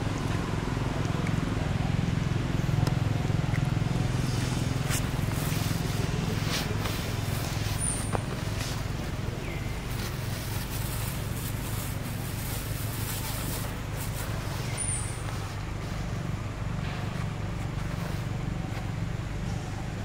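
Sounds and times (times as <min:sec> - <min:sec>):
low motor hum: 0:00.0 - 0:20.0.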